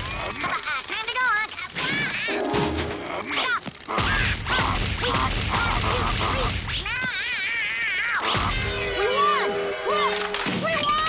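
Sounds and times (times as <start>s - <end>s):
music: 2.3s - 3.1s, 8.4s - 11.0s.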